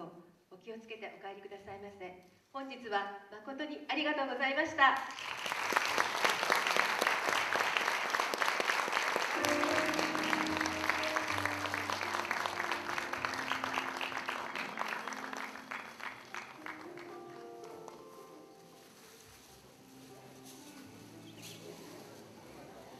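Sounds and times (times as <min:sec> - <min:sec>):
audience applauding: 0:05.1 - 0:18.0
instrumental music with held notes: 0:09.3 - 0:22.6.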